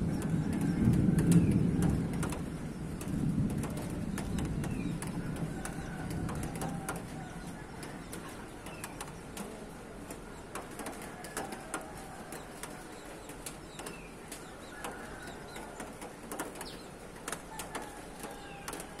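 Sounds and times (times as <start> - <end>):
birds chipping and whistling: 10.1 - 19.0.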